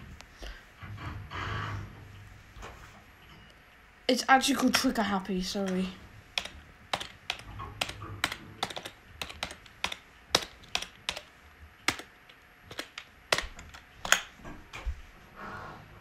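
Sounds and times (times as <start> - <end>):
keyboard key clicks: 6.4 - 11.3, 11.9 - 12.1, 12.7 - 14.3.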